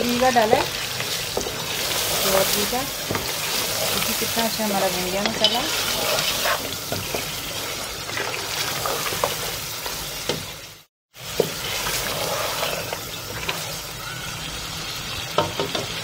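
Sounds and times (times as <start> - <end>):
meat sizzling in a pot: 0.0 - 16.0.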